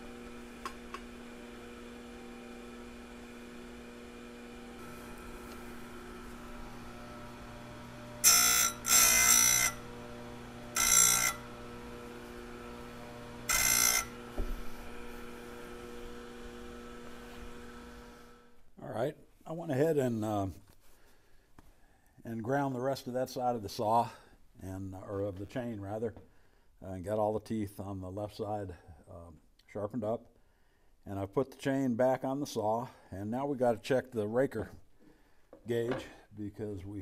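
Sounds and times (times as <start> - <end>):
grinder motor hum: 0.0 - 18.6
harsh grinding on metal: 0.0 - 18.6.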